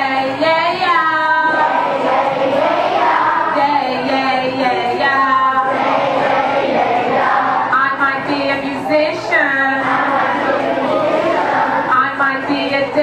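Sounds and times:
woman singing into a microphone: 0.0s - 1.9s, 3.2s - 5.8s, 7.6s - 10.2s, 11.9s - 13.0s
children singing along: 0.0s - 13.0s.

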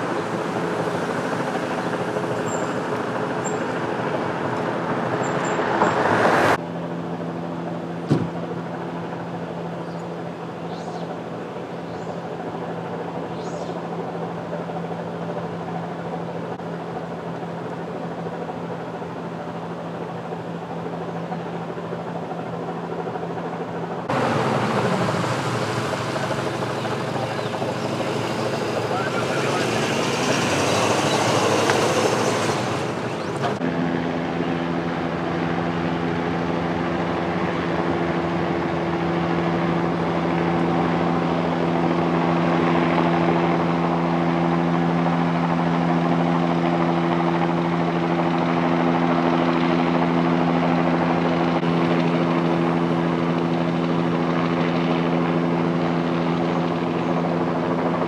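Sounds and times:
truck driving past: 0.0s - 6.6s, 24.0s - 33.8s
vehicle engines humming: 0.0s - 16.6s, 23.5s - 57.9s.

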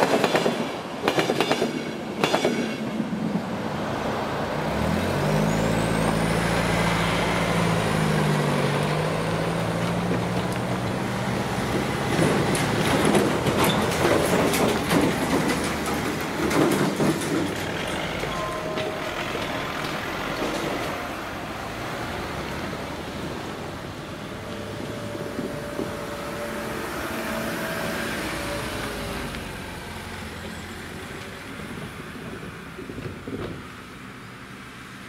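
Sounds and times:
wheels knocking on rails: 9.6s - 21.0s.

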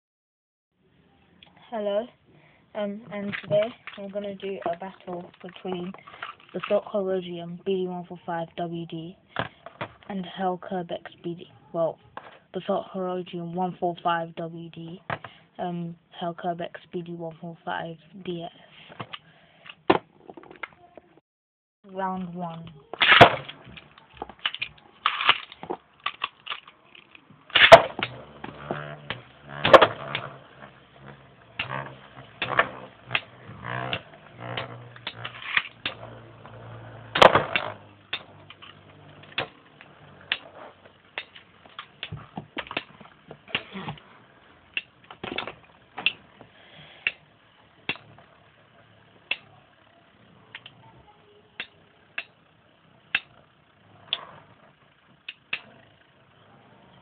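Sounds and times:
low hum: 21.9s - 57.0s.

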